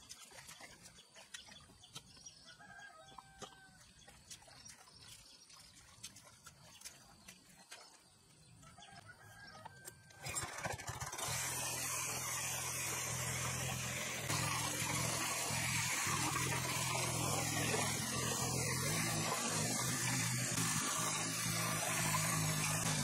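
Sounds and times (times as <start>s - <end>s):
tiller engine running: 10.0s - 23.0s.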